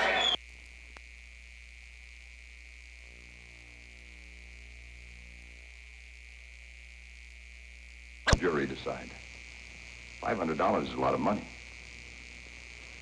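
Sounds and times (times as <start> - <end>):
faint electrical hum: 0.0 - 13.0
high-pitched whine: 8.3 - 13.0.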